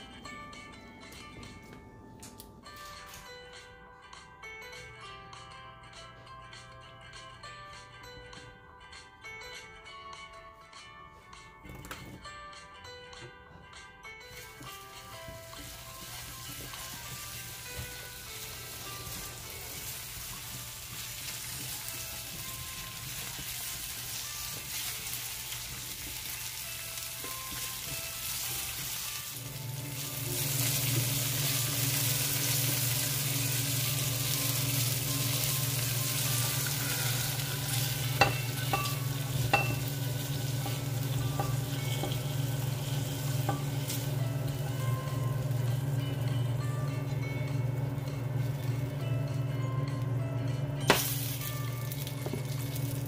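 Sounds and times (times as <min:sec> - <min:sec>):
peppers sizzling in a frying pan: 0:14.3 - 0:46.0, 0:50.8 - 0:53.0.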